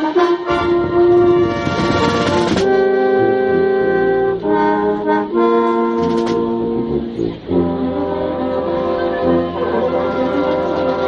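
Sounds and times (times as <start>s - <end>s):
brass band playing chords: 0.0s - 11.0s
percussion: 0.5s - 2.8s, 9.2s - 11.0s.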